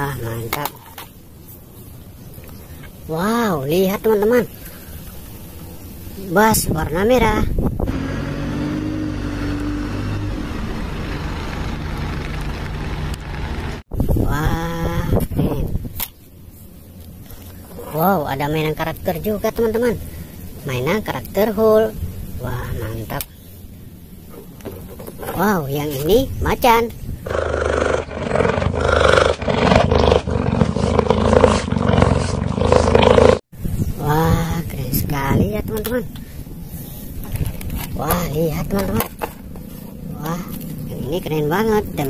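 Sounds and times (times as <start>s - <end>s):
bus engine driving past: 7.9s - 13.8s
big cat roaring and growling: 27.3s - 33.4s.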